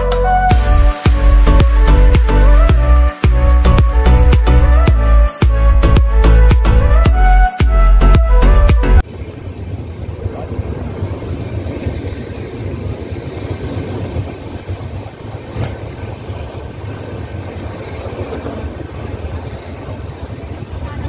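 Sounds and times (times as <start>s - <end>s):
background music: 0.0s - 9.0s
moving train rumble and wind: 0.0s - 21.0s.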